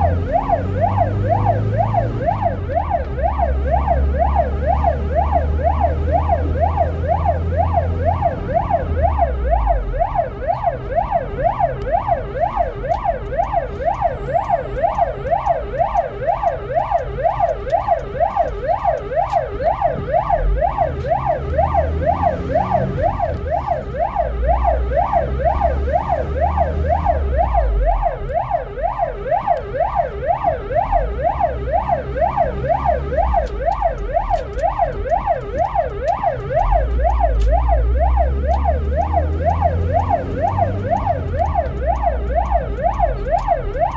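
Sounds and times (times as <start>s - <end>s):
ambulance siren yelping: 0.0s - 43.9s
vehicle engine and road rumble: 0.0s - 43.9s.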